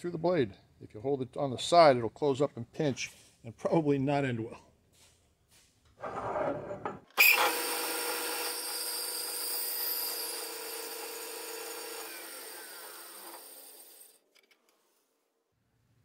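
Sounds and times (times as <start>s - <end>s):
vise scraping on saw table: 5.9s - 7.1s
bandsaw cutting metal: 7.2s - 14.2s.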